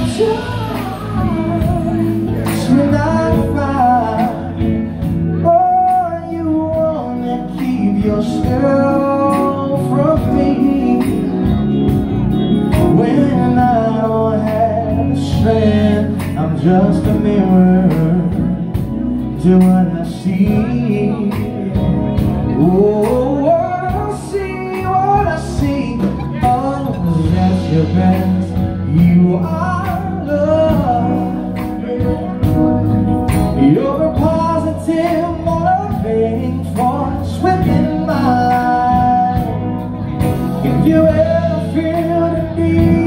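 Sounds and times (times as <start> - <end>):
men singing: 0.0 - 11.6, 12.7 - 32.6, 40.6 - 43.0
live band playing: 0.0 - 43.0.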